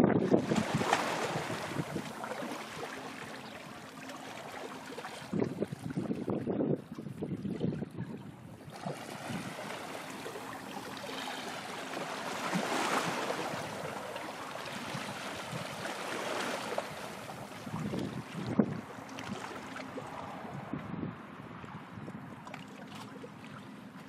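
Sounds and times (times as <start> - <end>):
wind on microphone: 0.0 - 2.8, 5.1 - 10.0, 12.5 - 22.5.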